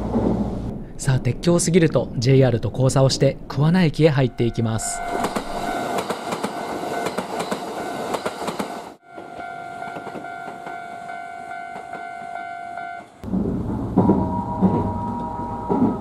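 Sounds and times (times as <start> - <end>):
steady tone: 3.7 - 7.0
train running past: 3.9 - 16.0
train wheels clicking over rail joints: 5.2 - 12.4, 13.0 - 16.0.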